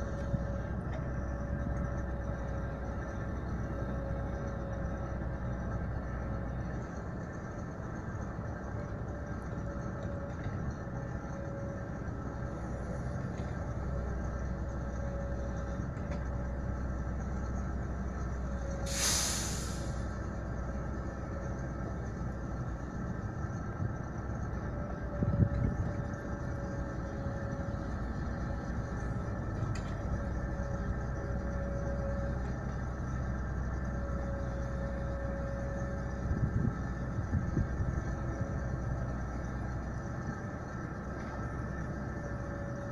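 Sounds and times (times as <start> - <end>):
diesel engines running: 0.0 - 42.9
loud hiss of air: 18.8 - 20.2.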